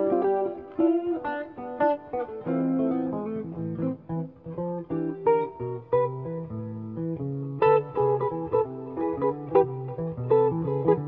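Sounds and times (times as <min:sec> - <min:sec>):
jazz guitar duet: 0:00.0 - 0:11.0.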